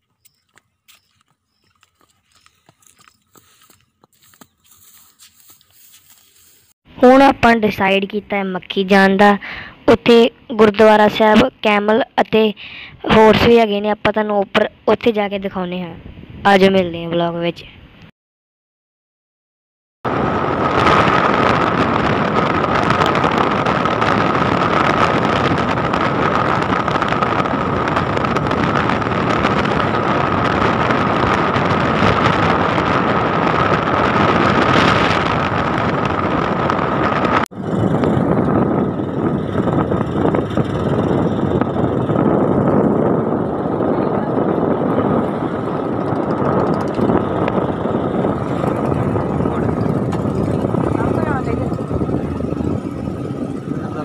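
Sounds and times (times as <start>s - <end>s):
motorcycle riding: 0.0s - 6.6s, 20.1s - 54.0s
wind rushing over microphone: 6.9s - 18.1s, 20.0s - 54.0s
steady whine: 20.1s - 54.0s.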